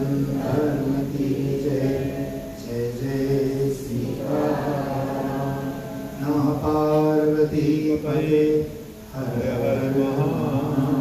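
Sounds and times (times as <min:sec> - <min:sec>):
man chanting: 0:06.1 - 0:11.0.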